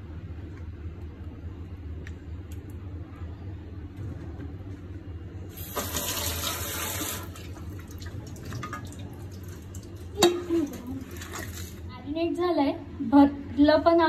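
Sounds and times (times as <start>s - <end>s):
steady low hum: 0.0s - 5.8s
water tap running: 5.5s - 11.8s.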